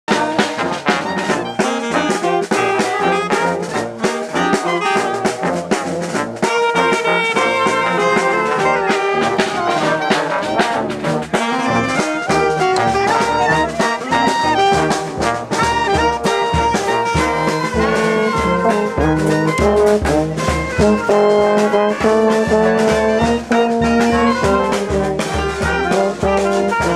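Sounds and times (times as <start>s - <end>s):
brass band playing a march: 0.1s - 26.9s
steady drum beat: 0.1s - 26.9s.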